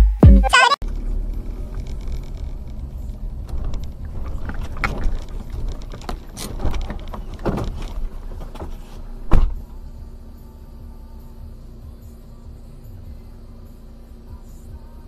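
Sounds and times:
car jolting over bumps: 0.8s - 10.0s
car interior rumble: 0.8s - 15.0s.

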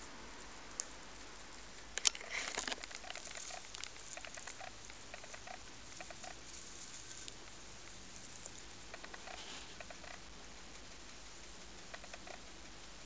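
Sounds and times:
rabbits chewing hay: 0.0s - 13.0s
hay rustling: 2.2s - 10.0s.

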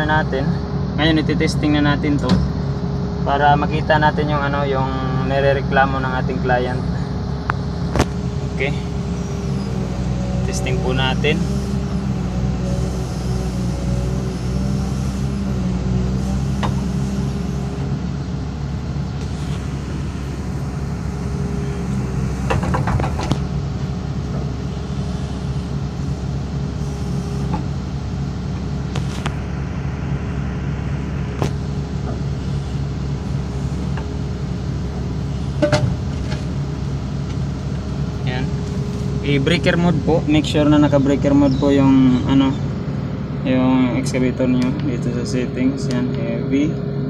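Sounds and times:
excavator diesel engine running: 0.0s - 47.0s.

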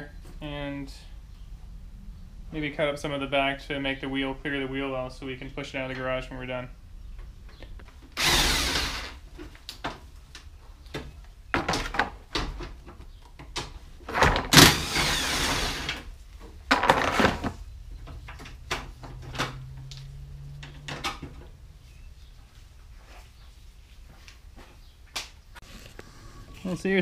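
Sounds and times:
cordless impact wrench bursts: 8.2s - 9.2s, 14.5s - 16.1s.

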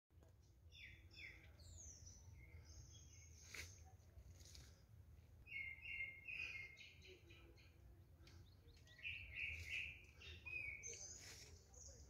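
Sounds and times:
birds chirping and whistling: 0.7s - 3.8s, 5.4s - 12.0s.

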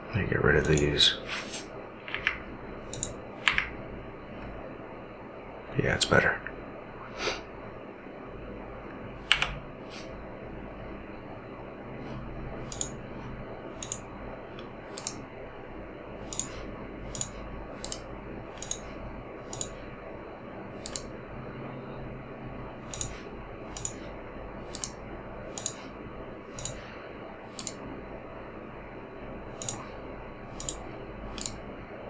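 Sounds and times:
computer mouse clicks: 0.6s - 0.9s, 2.1s - 3.7s, 9.3s - 9.6s, 12.7s - 13.0s, 13.8s - 14.0s, 14.6s - 15.2s, 16.2s - 18.9s, 19.5s - 19.8s, 20.8s - 21.1s, 22.8s - 24.0s, 24.7s - 25.8s, 26.5s - 26.8s, 27.5s - 27.8s, 29.6s - 29.9s, 30.5s - 31.6s.

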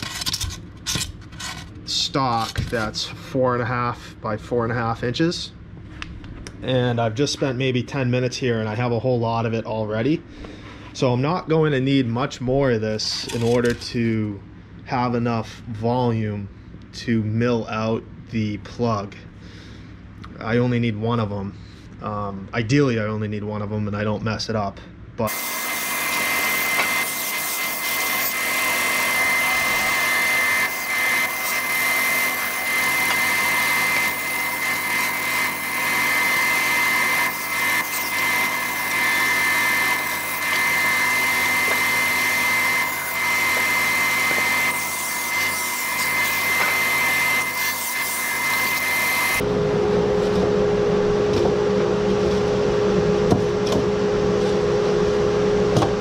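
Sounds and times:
low machine hum: 0.0s - 26.7s, 28.3s - 56.0s
bandsaw whining: 25.3s - 56.0s.

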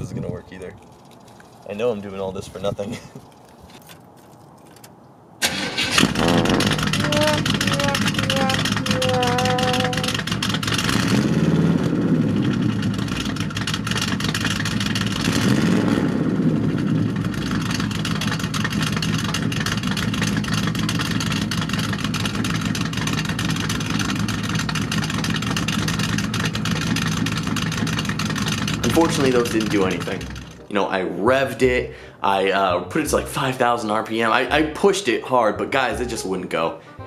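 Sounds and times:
car engine revving: 5.4s - 30.7s
party blowers fluttering: 6.0s - 10.4s, 26.3s - 30.6s.

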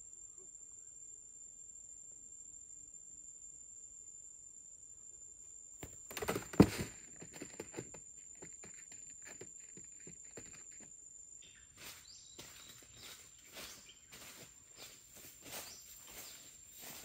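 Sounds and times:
cardboard box trap thudding shut: 5.8s - 7.1s
light knocks and scuffling: 5.8s - 10.9s.

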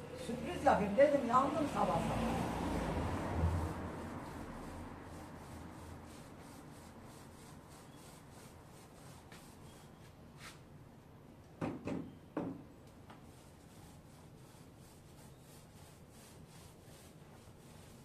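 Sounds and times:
paint roller rubbing on wall: 1.8s - 10.6s, 13.2s - 18.0s.

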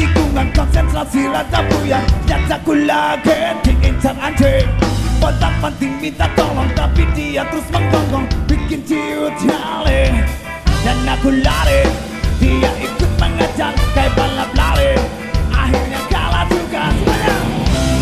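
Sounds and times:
man singing: 0.0s - 18.0s
rock band playing: 0.0s - 18.0s.

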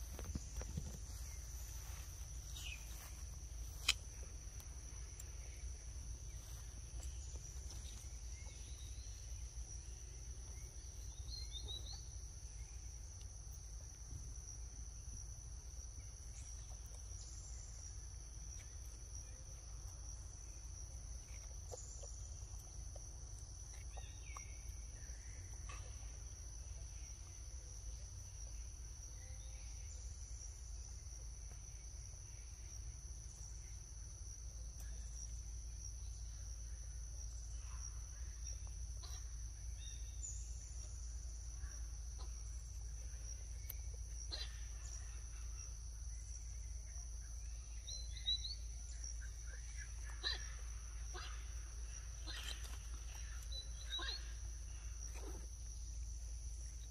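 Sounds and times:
faint chirps: 0.0s - 13.6s, 34.6s - 56.9s
insects droning: 0.0s - 56.9s.

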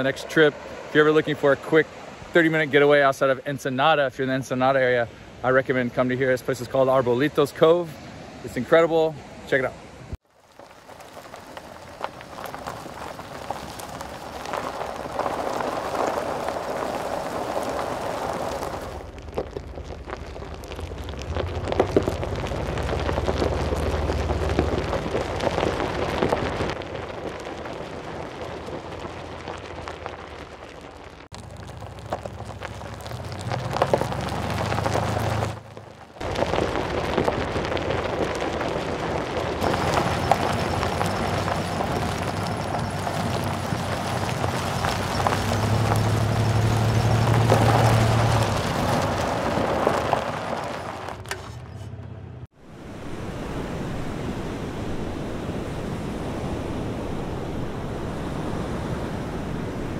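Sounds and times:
tyres crunching over rocks: 10.2s - 52.0s
low engine rumble: 31.2s - 54.6s.

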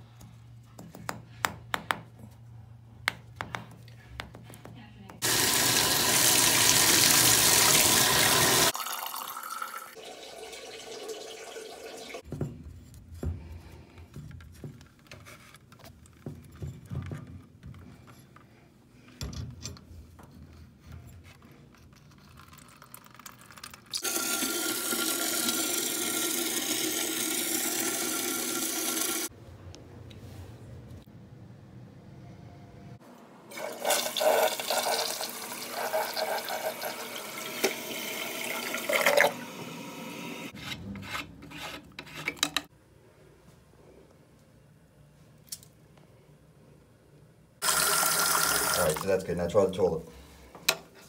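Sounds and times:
water running from bathtub spout: 5.2s - 12.2s, 23.6s - 29.3s, 33.5s - 39.4s, 47.6s - 49.2s.

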